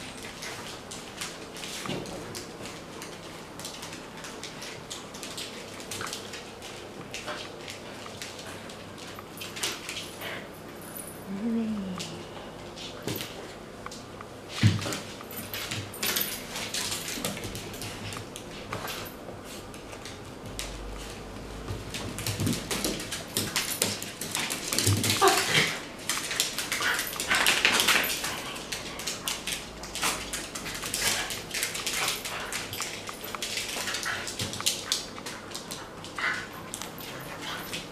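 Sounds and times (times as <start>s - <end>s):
claws clicking on hard floor: 12.9s - 37.9s.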